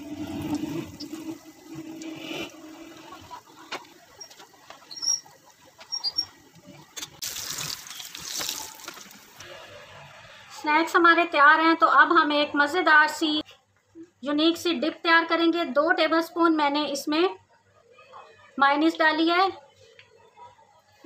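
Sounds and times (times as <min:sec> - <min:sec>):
oil sizzling and popping: 0:00.0 - 0:09.5.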